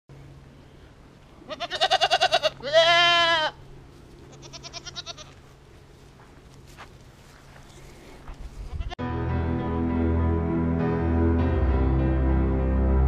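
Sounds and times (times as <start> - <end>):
goats bleating: 1.4 - 3.6, 4.3 - 5.4.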